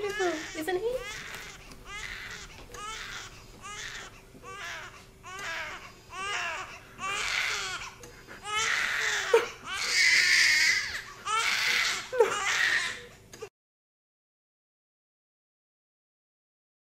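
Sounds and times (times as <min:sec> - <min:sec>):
newborn baby crying: 0:00.0 - 0:13.1.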